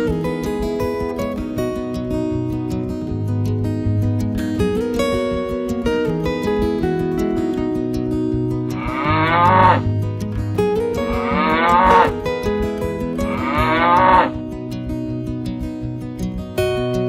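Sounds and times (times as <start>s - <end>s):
acoustic guitar music: 0.0s - 17.0s
cow mooing: 8.8s - 9.9s, 11.1s - 12.2s, 13.3s - 14.4s.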